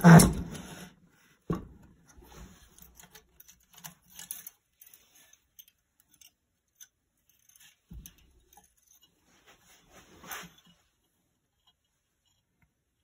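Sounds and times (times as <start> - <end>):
small metal clicks and taps: 2.8 - 9.2.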